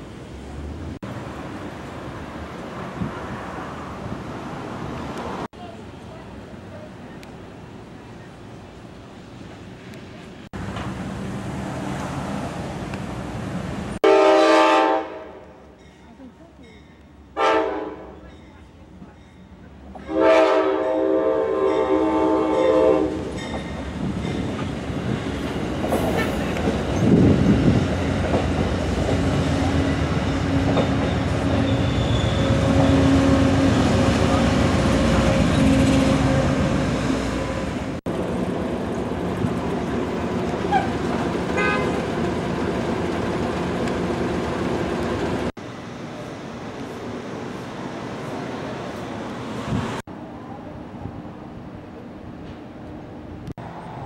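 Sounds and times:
train rumbling past on rails: 0.0s - 54.0s
train horn chord: 14.0s - 15.5s, 17.4s - 18.2s, 20.0s - 23.3s, 41.6s - 42.0s.

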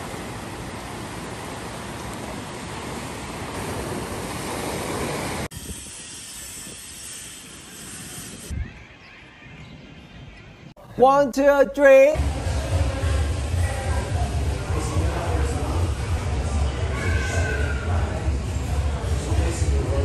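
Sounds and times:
small waves washing on sand: 0.0s - 7.4s
steady outdoor hiss: 0.0s - 20.0s
wind on microphone: 3.9s - 10.7s.

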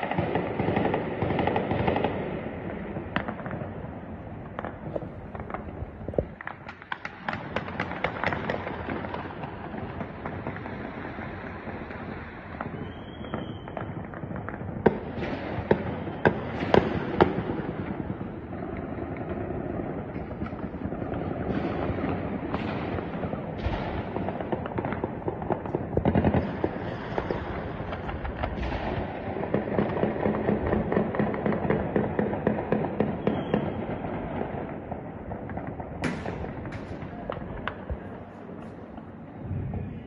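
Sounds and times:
distant celebratory gunfire: 12.5s - 38.3s.

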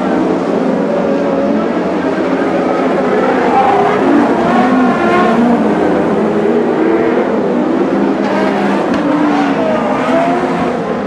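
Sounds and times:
race car engines revving: 0.0s - 11.0s.

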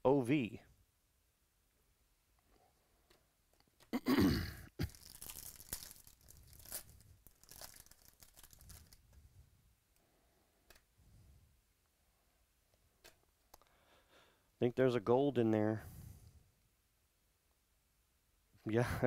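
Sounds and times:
wrapper torn open: 4.8s - 9.0s
wrapper and cards rustling: 4.8s - 9.2s.

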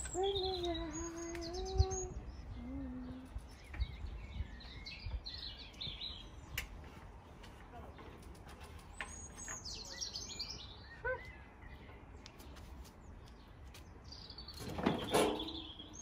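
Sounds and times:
small birds chirping and singing: 0.0s - 16.0s
barbecue lid opening: 14.6s - 15.7s.

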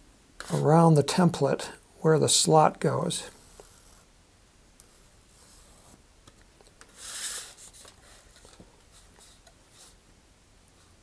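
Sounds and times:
marker pen scratching on plastic: 0.4s - 0.6s, 3.4s - 4.1s.

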